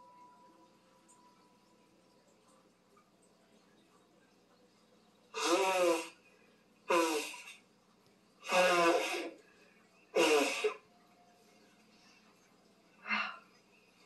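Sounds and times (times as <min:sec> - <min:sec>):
woman blowing her nose: 0:05.4 - 0:06.2, 0:06.9 - 0:07.6, 0:08.4 - 0:09.4, 0:10.2 - 0:10.8.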